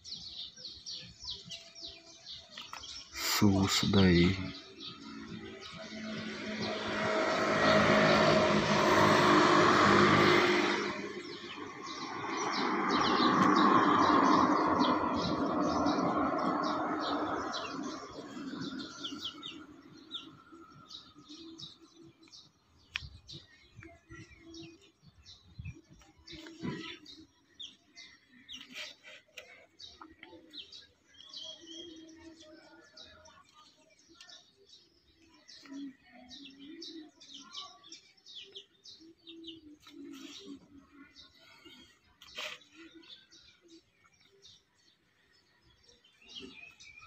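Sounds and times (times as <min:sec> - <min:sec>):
traffic passing: 0:03.2 - 0:22.5.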